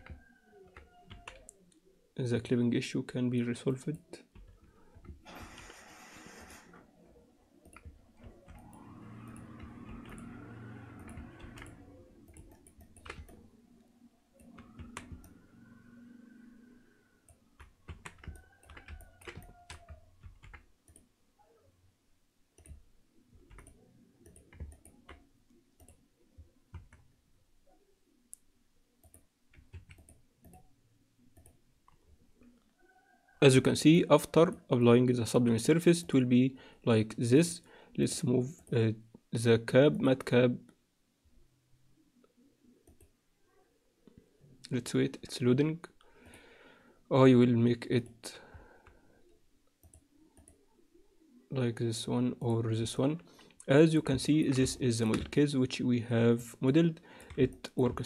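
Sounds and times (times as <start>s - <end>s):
low background gliding tones: 3.3s - 18.1s
keyboard key presses: 10.9s - 13.4s, 17.6s - 21.0s.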